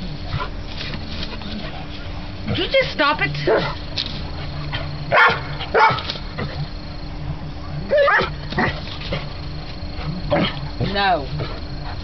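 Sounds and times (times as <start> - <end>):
dog barking and yipping: 3.4 - 6.6, 7.6 - 9.2.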